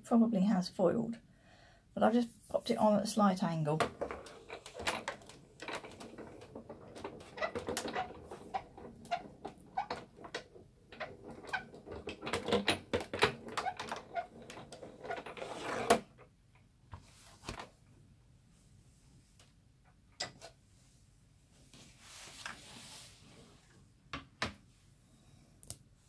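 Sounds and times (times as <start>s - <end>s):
hand-cranked die-cutting machine: 4.2s - 16.0s.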